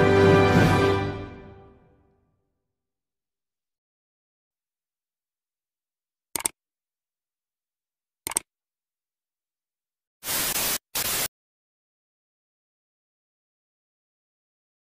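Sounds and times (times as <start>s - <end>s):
tv static white noise: 10.2s - 11.3s.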